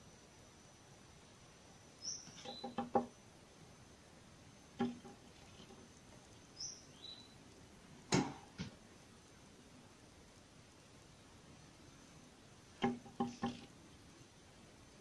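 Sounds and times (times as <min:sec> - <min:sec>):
bird calling high and thin: 0:02.0 - 0:02.9
bird tapping on window glass: 0:02.3 - 0:03.1, 0:04.8 - 0:05.9, 0:12.8 - 0:13.7.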